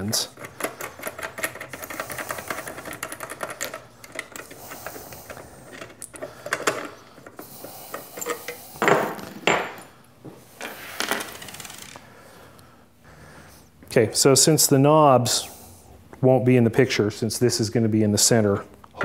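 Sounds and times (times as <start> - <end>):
metal parts scraping and clicking: 0.0 - 9.8, 10.6 - 12.0.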